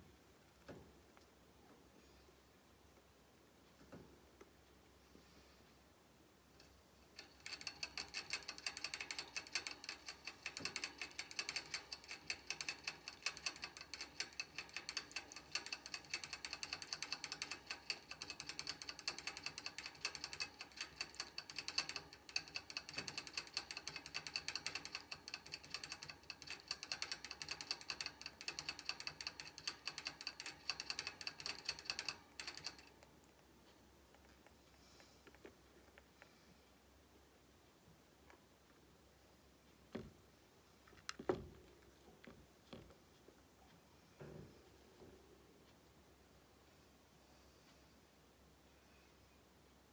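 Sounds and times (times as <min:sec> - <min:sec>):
hamster licking metal spout: 0:07.2 - 0:32.8.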